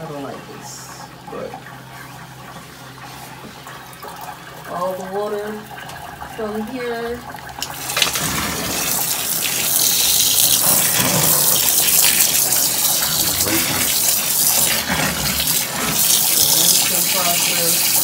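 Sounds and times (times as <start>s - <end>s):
water splashing from hose: 7.6s - 18.0s.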